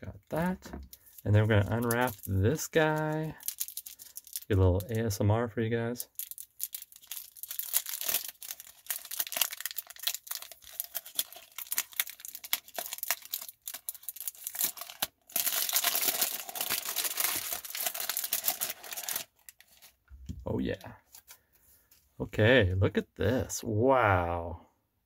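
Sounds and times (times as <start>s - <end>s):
wrapping paper tearing and crinkling: 0.9s - 5.0s, 6.0s - 20.0s.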